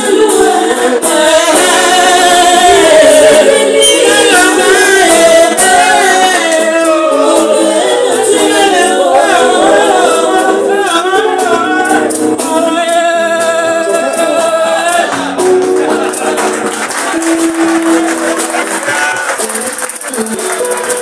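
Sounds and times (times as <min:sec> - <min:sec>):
people singing in harmony: 0:00.0 - 0:19.2
band percussion: 0:00.0 - 0:21.0.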